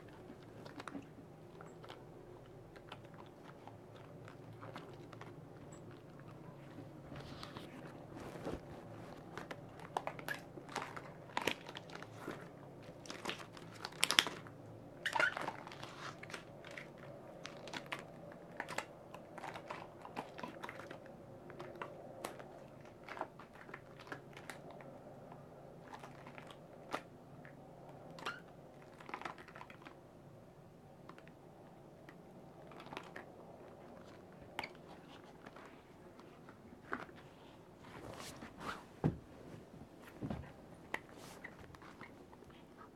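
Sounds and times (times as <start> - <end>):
latex gloves creaking and squeaking: 15.0 - 16.8, 28.1 - 28.5, 32.7 - 42.9.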